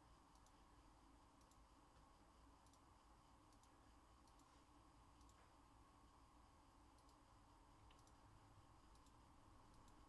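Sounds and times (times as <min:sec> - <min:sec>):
faint clicks: 0:00.3 - 0:00.6, 0:01.4 - 0:01.7, 0:02.6 - 0:02.9, 0:03.5 - 0:04.6, 0:05.2 - 0:05.6, 0:06.9 - 0:07.2, 0:07.8 - 0:08.2, 0:08.9 - 0:10.0.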